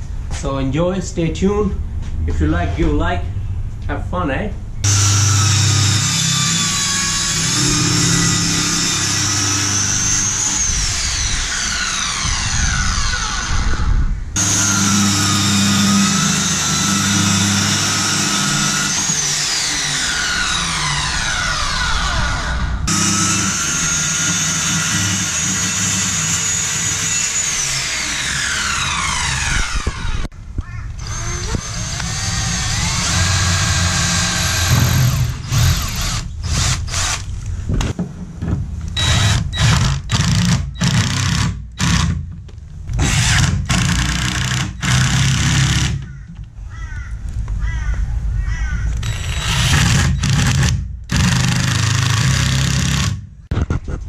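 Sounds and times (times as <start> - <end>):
cordless drill driving screws: 4.9 - 13.8, 14.4 - 30.3, 31.0 - 37.3, 39.0 - 42.2, 43.0 - 46.1, 49.0 - 53.2
circular saw cutting plywood: 4.9 - 30.3, 31.0 - 37.2.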